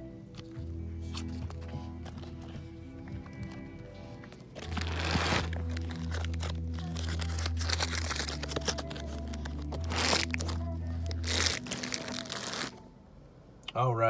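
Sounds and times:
plastic cd cases clacking: 3.2s - 12.7s.

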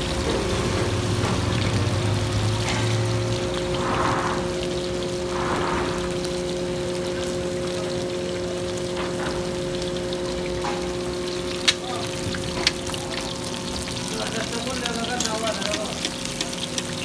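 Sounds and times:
fish sizzling in oil: 0.0s - 17.0s
metal spatula clicking on griddle: 15.0s - 17.0s.

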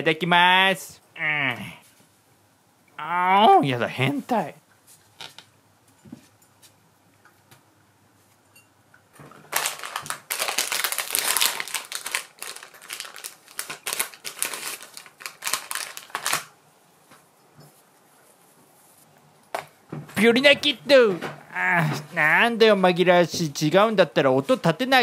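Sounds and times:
foil pouch crinkling: 9.4s - 16.6s.

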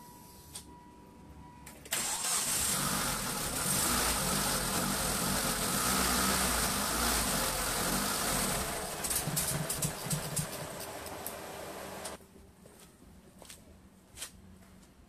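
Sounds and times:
car engine starting and idling: 1.9s - 12.2s.

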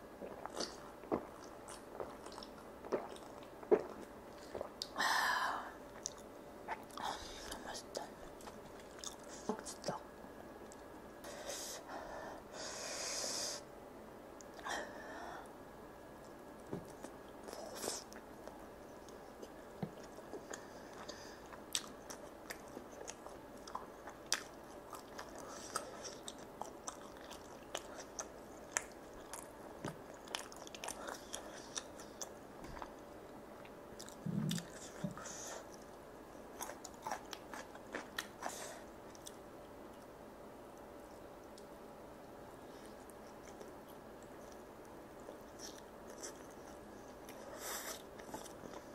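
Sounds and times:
person chewing: 0.2s - 4.9s, 6.0s - 7.6s, 8.4s - 9.8s, 16.8s - 32.9s, 33.6s - 40.1s, 42.8s - 44.6s, 45.2s - 48.9s.

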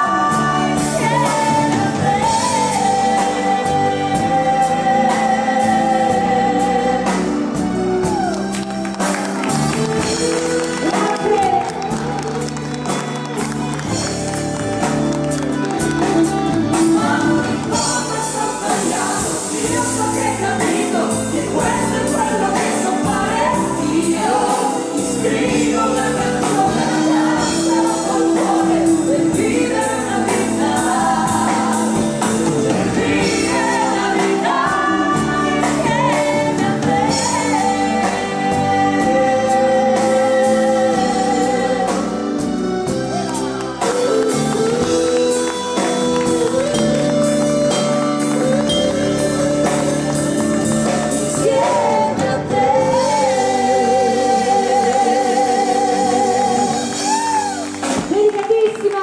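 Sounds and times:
woman singing: 0.0s - 7.6s, 10.3s - 12.3s, 16.0s - 42.4s, 50.8s - 59.0s
live band playing pop ballad: 0.0s - 59.0s.

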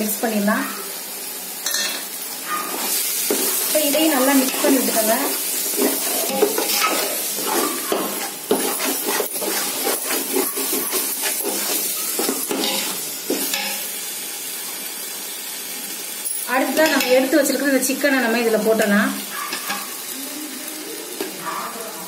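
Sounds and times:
frying sizzle: 0.0s - 22.0s
metal ladle scraping a pot: 2.7s - 13.8s.

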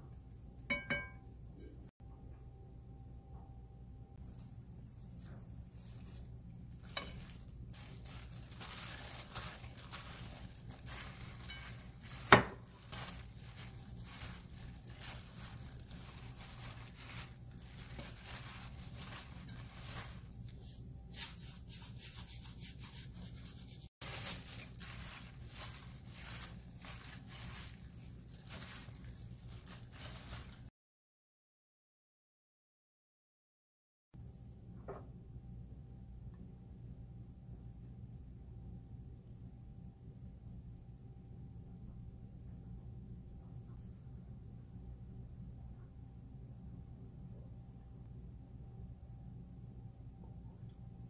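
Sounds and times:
plastic glove crinkling: 4.2s - 30.7s.

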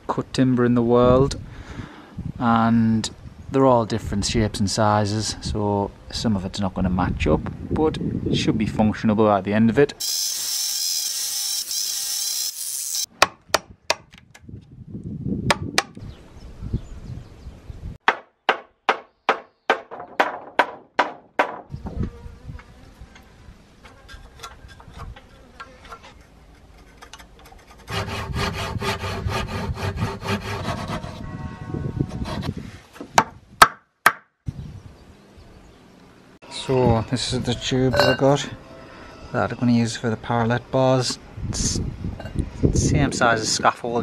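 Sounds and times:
electric mitre saw cutting timber: 10.0s - 13.1s
hand saw cutting wood: 10.0s - 13.1s, 23.9s - 31.2s.

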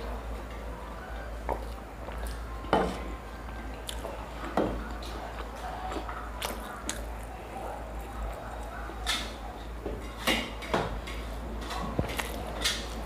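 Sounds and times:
person chewing: 3.8s - 4.1s, 4.9s - 7.3s, 12.0s - 12.5s.

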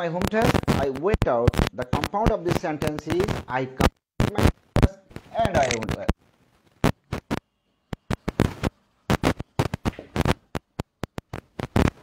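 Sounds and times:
sharp clicks and taps: 6.8s - 12.0s.

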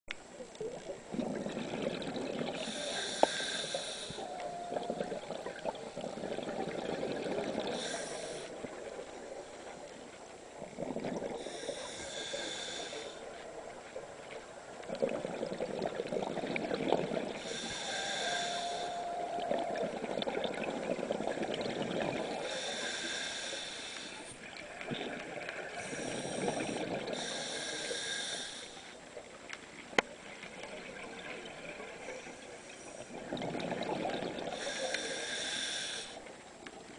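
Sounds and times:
bubbling exhaust: 1.1s - 8.9s
regulator hissing inhale: 2.6s - 4.5s, 7.7s - 8.6s, 11.4s - 13.4s, 17.3s - 19.3s, 22.3s - 24.4s, 25.8s - 29.0s, 34.5s - 36.3s.

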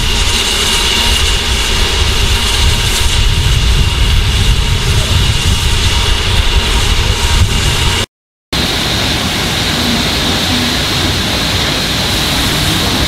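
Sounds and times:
rough low rumble: 8.6s - 13.0s
steam hissing: 8.6s - 13.0s.

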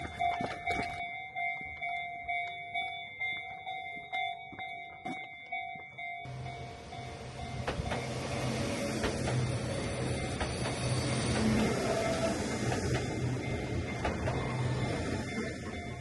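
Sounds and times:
level-crossing bell dinging: 0.0s - 16.0s
train running noise: 4.6s - 16.0s.

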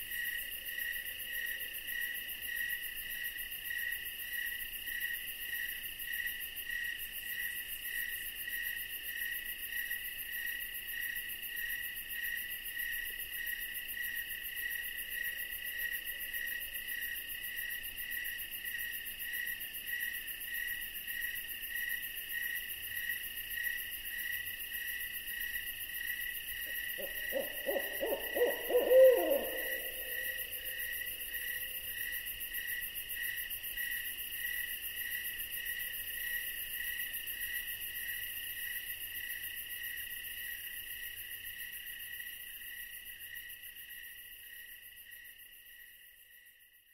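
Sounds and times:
crickets and insects chirping: 0.0s - 46.9s
quavering owl hoot: 26.7s - 31.7s.

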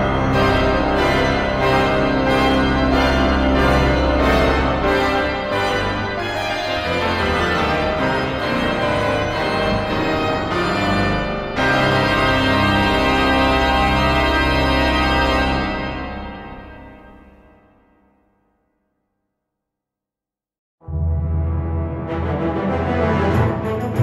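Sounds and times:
organ-like keyboard chords: 0.0s - 17.4s.

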